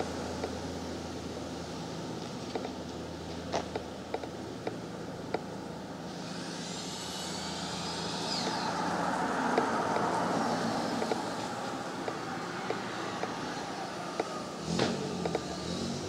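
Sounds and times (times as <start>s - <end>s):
vehicle approaching: 6.6s - 16.0s
low engine hum: 7.4s - 16.0s.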